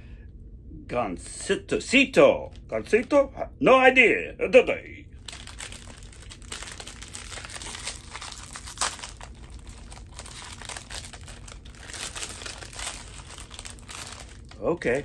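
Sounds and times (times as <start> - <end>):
plastic wrapper crinkling and tearing: 5.2 - 15.0.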